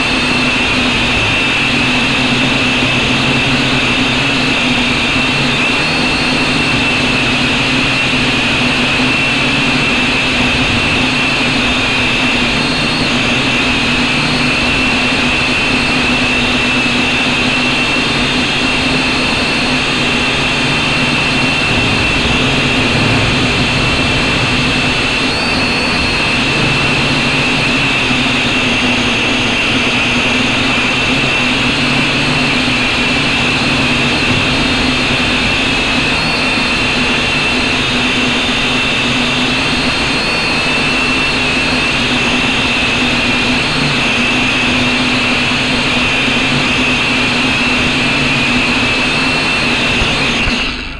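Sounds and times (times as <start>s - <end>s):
wind on microphone: 19.0s - 39.1s.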